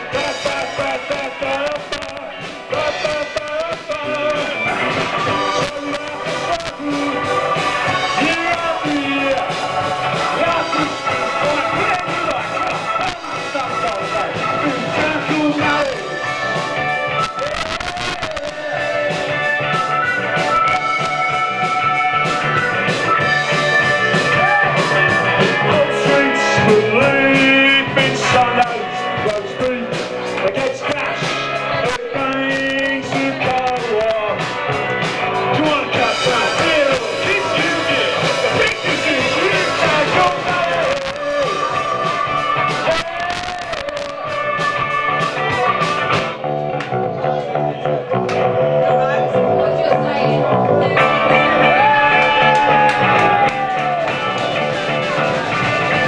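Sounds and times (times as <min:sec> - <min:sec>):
man singing: 0:00.0 - 0:20.1, 0:23.6 - 0:34.8, 0:35.4 - 0:45.8
bass guitar: 0:00.0 - 0:56.0
drums: 0:00.0 - 0:56.0
electric guitar: 0:00.0 - 0:56.0
keyboard: 0:00.0 - 0:56.0.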